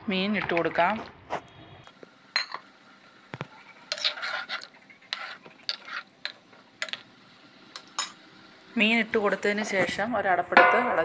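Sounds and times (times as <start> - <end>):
spoon scraping pot: 3.5 - 7.0.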